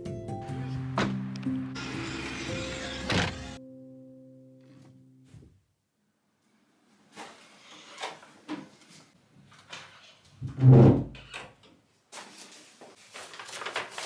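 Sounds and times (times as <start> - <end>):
door shutting with thud: 2.6 - 3.6
paper bag rustling: 12.1 - 14.0.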